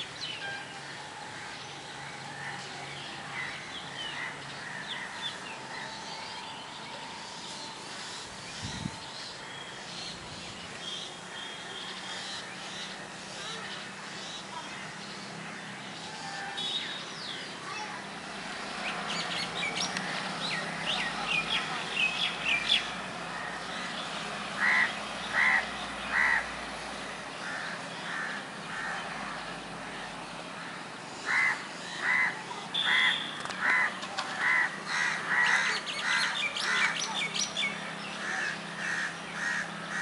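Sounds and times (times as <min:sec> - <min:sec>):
small birds chirping: 0:00.0 - 0:40.0
crows cawing: 0:24.6 - 0:26.5, 0:27.4 - 0:37.0, 0:38.2 - 0:40.0.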